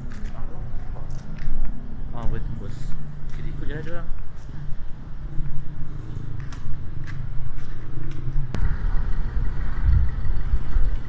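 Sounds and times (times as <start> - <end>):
footsteps on pavement: 0.0 - 8.6
road traffic rumble: 0.0 - 11.0.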